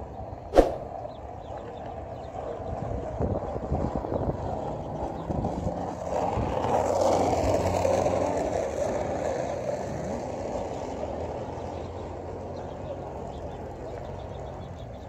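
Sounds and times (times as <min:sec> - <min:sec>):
wind rumble on microphone: 0:00.0 - 0:09.1.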